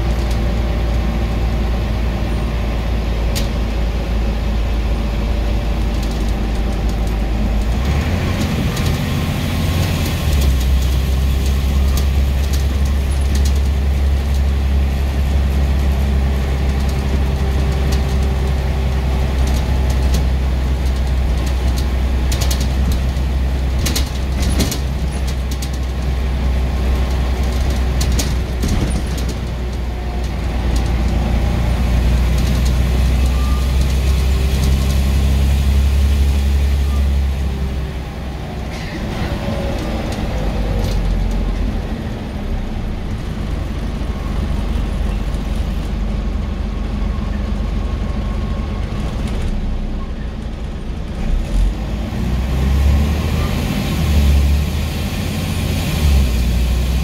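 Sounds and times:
bus diesel engine droning: 0:00.0 - 0:57.0
sharp clicks and rattles: 0:05.7 - 0:09.0, 0:15.2 - 0:35.0.

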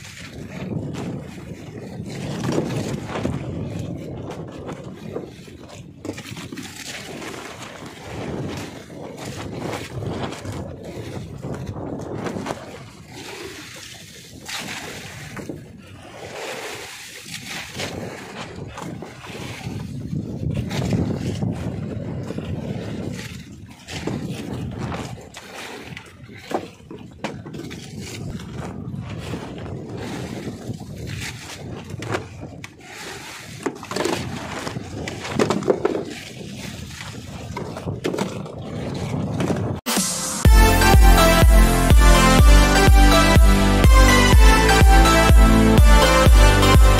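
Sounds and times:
water splashing against boat hull: 0:00.0 - 0:46.9
steady low rumble: 0:39.9 - 0:46.9.

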